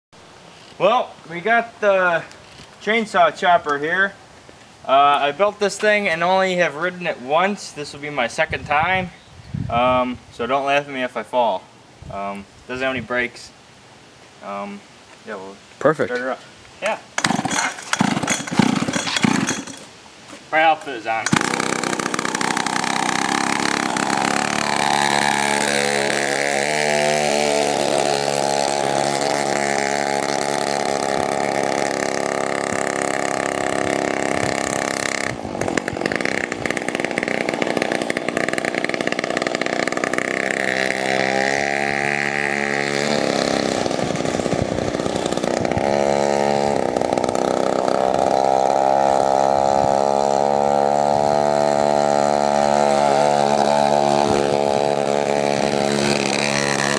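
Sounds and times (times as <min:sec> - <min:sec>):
two-stroke engine revving: 0:17.2 - 0:19.9, 0:21.2 - 0:56.9.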